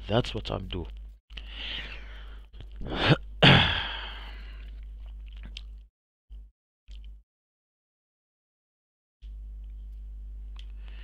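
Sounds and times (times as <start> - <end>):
low electrical hum: 0.0 - 7.2, 9.2 - 11.0
man sneezing: 2.8 - 4.2.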